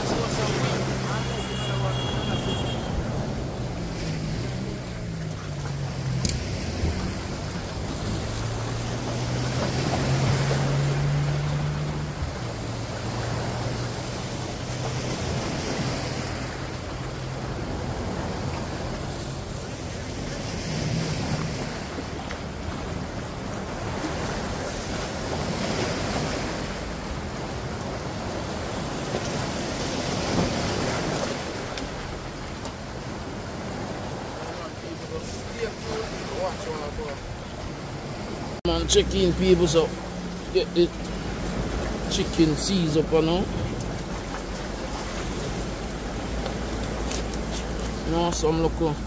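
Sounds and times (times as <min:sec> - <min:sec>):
sea waves against rocks: 0:00.0 - 0:49.0.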